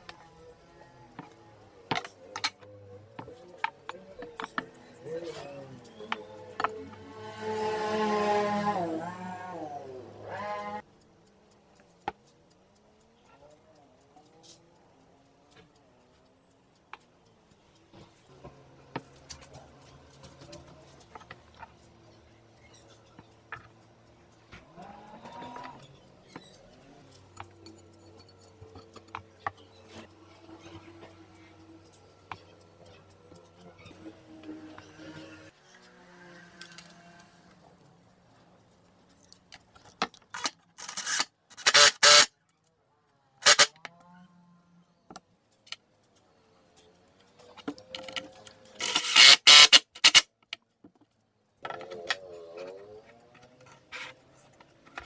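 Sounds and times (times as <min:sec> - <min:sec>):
power drill driving a screw: 0:40.4 - 0:42.3, 0:43.4 - 0:43.8, 0:48.8 - 0:50.3.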